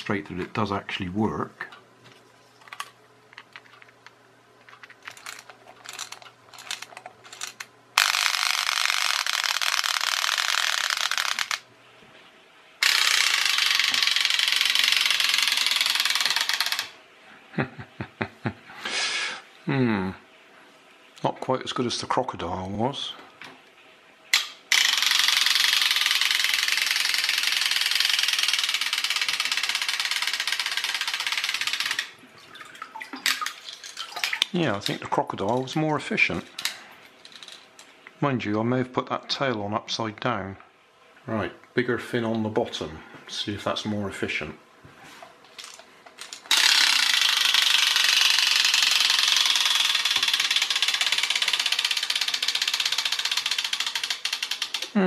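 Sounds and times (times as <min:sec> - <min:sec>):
toy tail flapping in water: 0:04.6 - 0:11.6
toy knocking down: 0:04.7 - 0:11.6, 0:12.8 - 0:17.0, 0:24.3 - 0:32.1, 0:45.6 - 0:55.0
clockwork motor buzzing: 0:05.2 - 0:11.6, 0:12.8 - 0:17.0, 0:24.4 - 0:32.1, 0:46.5 - 0:55.0.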